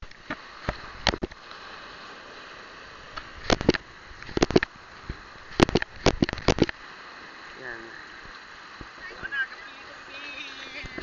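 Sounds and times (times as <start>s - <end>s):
surf washing onto sand: 0.0s - 11.0s
sharp crackling knocks: 3.4s - 6.8s.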